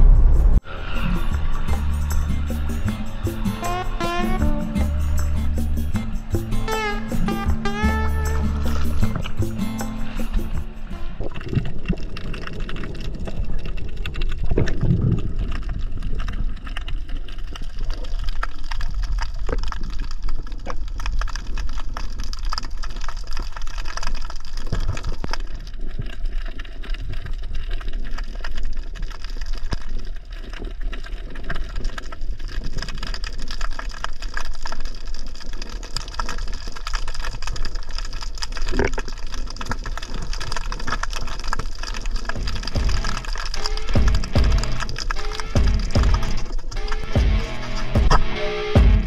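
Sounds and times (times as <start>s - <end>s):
low thuds: 0.0s - 3.3s, 42.4s - 43.4s, 44.0s - 45.0s, 45.6s - 46.5s, 47.1s - 49.0s
water gurgling and sloshing: 6.0s - 49.0s.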